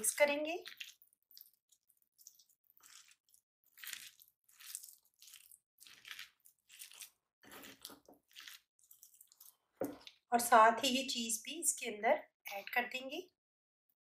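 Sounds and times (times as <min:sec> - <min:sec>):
hands squishing mashed potato: 0:00.0 - 0:10.3.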